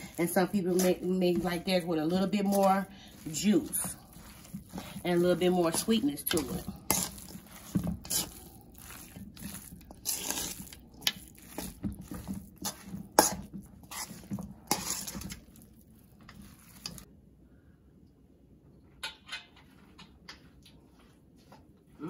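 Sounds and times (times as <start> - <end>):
hands squelching wet salad: 0.0 - 17.1.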